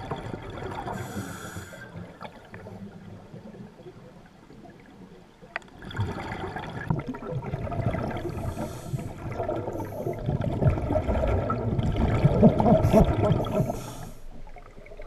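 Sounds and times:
underwater regulator bubbles gurgling: 0.0 - 15.0.

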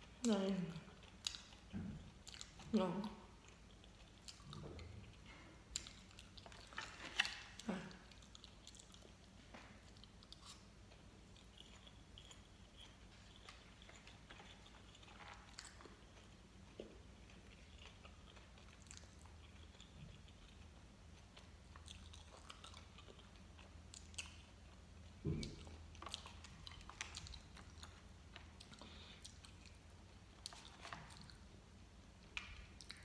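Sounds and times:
chewing gummy candy: 0.0 - 31.6, 32.2 - 33.0.

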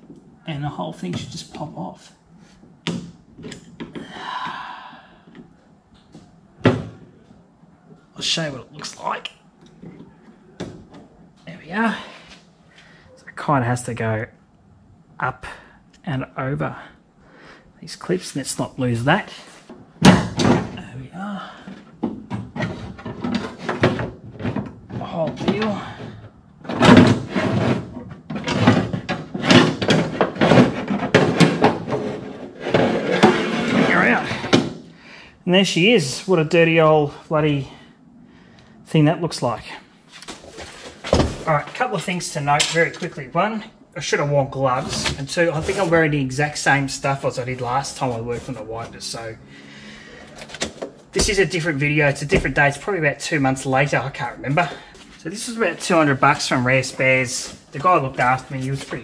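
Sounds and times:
breathy rush of noise: 4.0 - 5.6, 49.3 - 50.5
metal scraping and clunking: 21.6 - 34.8, 44.6 - 49.4.

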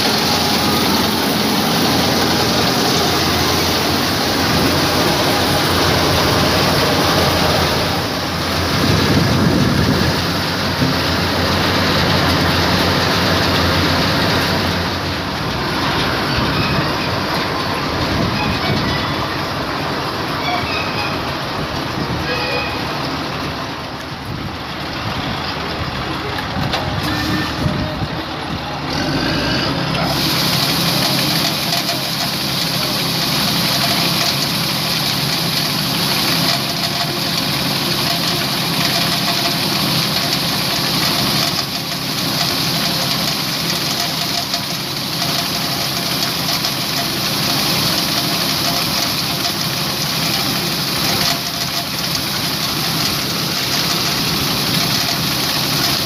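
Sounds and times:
grain pouring hiss: 0.0 - 16.3, 30.0 - 56.0
combine harvester engine hum: 0.0 - 56.0.

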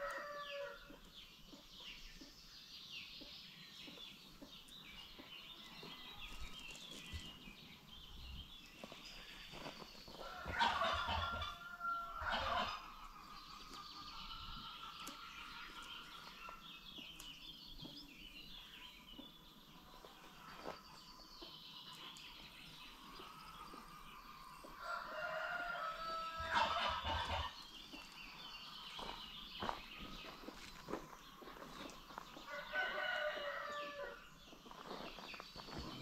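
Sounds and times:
rooster crowing: 0.0 - 0.8, 10.2 - 12.8, 24.8 - 27.5, 32.5 - 34.2
chickens clucking: 9.5 - 18.0, 19.0 - 34.0.

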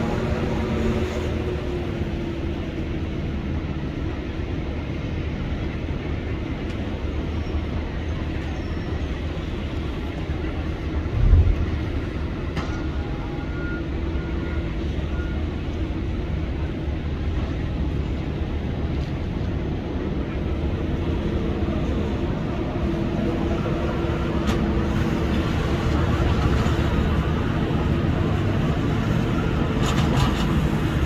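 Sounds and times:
heavy diesel machinery running: 0.0 - 31.0
heavy low thump: 11.1 - 12.1.

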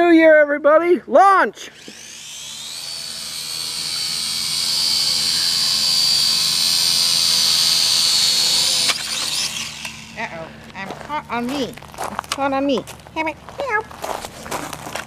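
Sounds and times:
drone propellers whining: 1.6 - 11.8.

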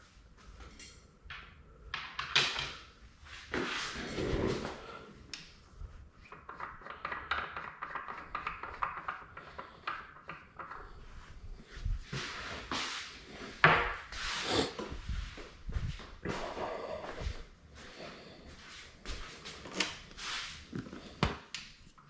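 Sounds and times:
slider rubbing and ticking: 6.2 - 11.1.

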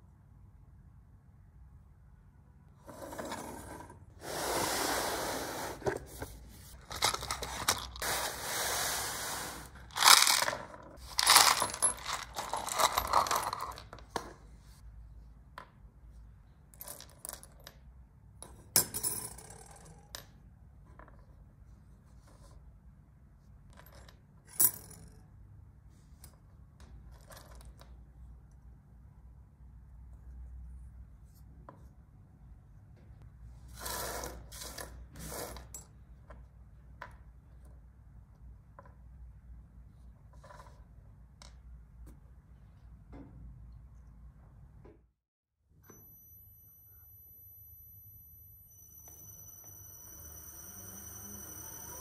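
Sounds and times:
metal parts clicking: 9.9 - 14.0
small metal parts clattering on wood: 10.0 - 14.0.

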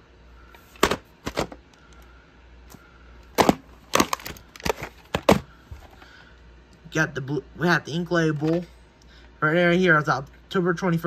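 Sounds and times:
plastic case clicks and snaps: 3.4 - 5.4.

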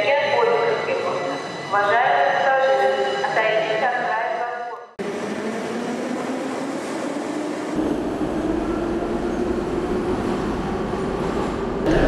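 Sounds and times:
metro train rushing: 5.0 - 12.0.

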